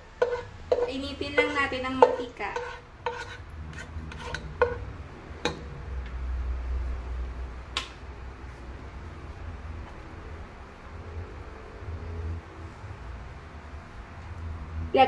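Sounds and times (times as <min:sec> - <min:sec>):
spatula tapping a pot: 0:00.0 - 0:03.4, 0:04.1 - 0:04.8, 0:05.4 - 0:05.6.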